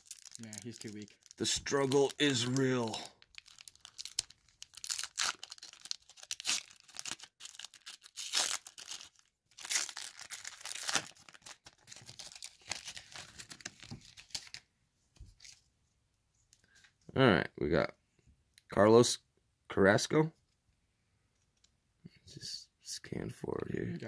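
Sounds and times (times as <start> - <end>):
plastic wrapper tearing and crinkling: 0.0 - 14.6.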